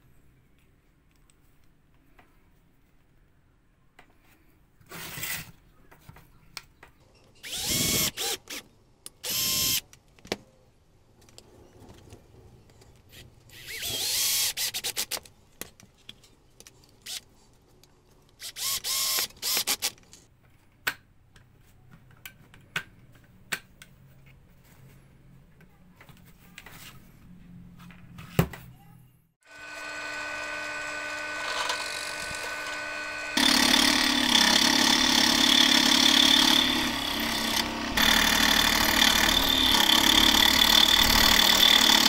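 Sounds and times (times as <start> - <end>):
cordless drill motor whine: 7.4 - 8.4, 9.3 - 9.8, 18.5 - 19.8, 29.5 - 41.7.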